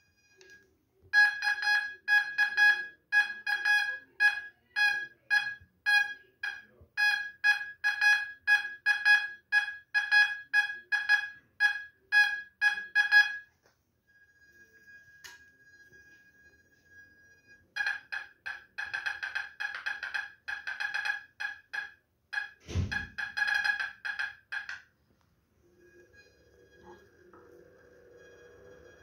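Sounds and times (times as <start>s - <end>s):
metal detector beeps: 0.0s - 13.5s, 14.2s - 24.8s
faint steady tone: 0.0s - 29.0s.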